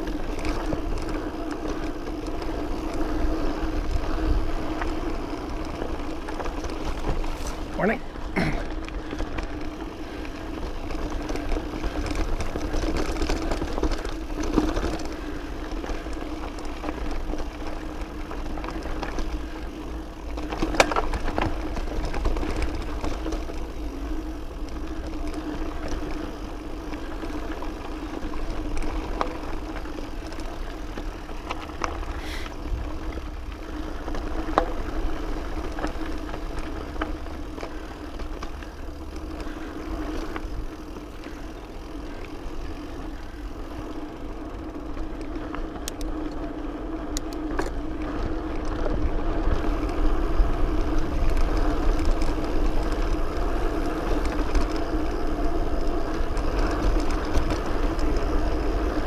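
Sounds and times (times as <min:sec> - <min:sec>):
knocks and rattles over rocks: 0:00.0 - 0:26.3
bike tyres whirring on dirt: 0:00.0 - 0:59.0.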